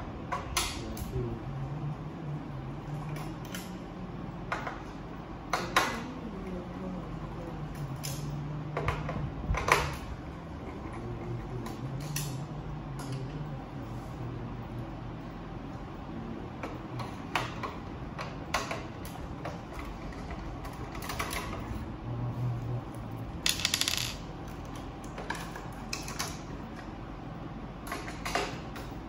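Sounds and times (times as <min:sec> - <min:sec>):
steady low hum: 0:00.0 - 0:29.0
clicks and knocks of parts handled: 0:23.5 - 0:26.4.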